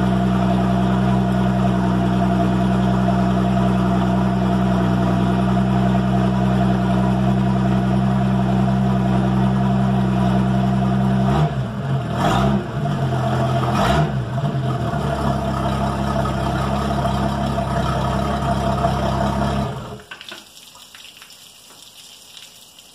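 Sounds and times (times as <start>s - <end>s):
boat engine running and revving: 0.0s - 20.0s
water splashing and trickling: 14.9s - 22.9s.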